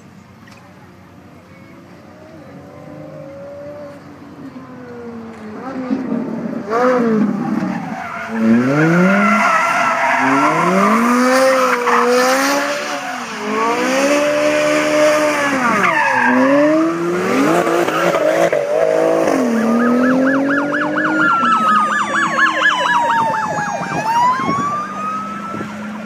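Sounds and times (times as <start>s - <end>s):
car engine revving hard: 5.6s - 21.3s
police siren yelp and wail: 7.4s - 16.8s, 19.2s - 26.0s.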